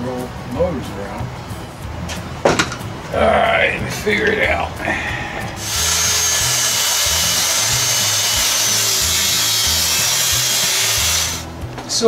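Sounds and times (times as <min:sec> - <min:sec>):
circular saw cutting wood: 0:05.6 - 0:11.5.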